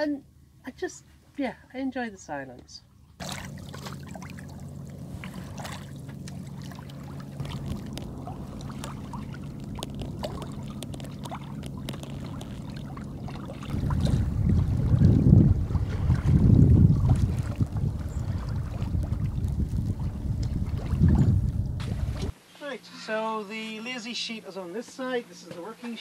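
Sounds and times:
steady low hum: 2.9s - 23.0s
water lapping along boat hull: 3.0s - 22.4s
wind buffeting microphone: 3.5s - 22.3s.

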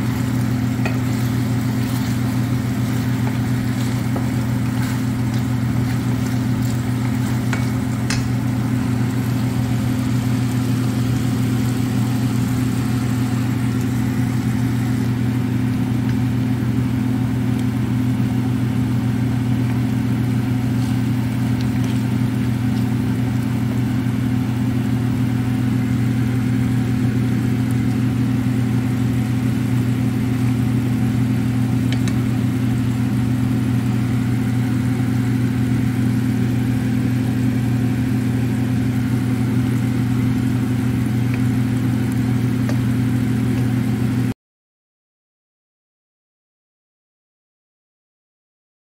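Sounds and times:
food sizzling in a pan: 0.0s - 15.5s, 19.8s - 24.4s
low machine hum: 0.0s - 44.4s
wooden spoon tapping a pan: 0.8s - 2.2s, 2.8s - 8.4s.

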